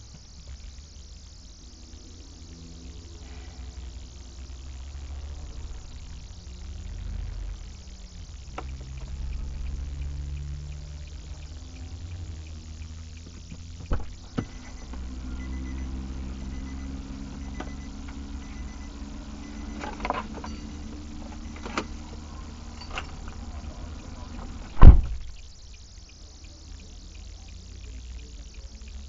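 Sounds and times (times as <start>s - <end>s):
car interior low hum: 0.0s - 29.0s
sharp knocks and clicks: 8.5s - 15.1s
loud thump: 13.8s - 14.6s, 24.7s - 25.3s.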